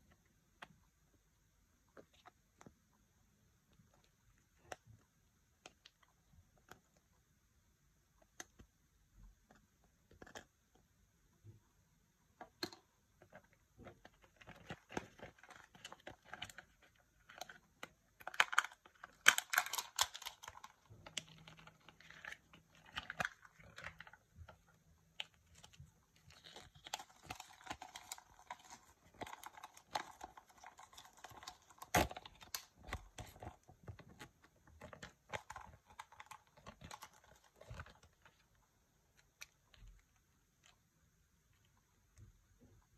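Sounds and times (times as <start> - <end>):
plastic lid peeling crackle: 13.8 - 38.5
plastic toy parts clicking: 18.2 - 22.2.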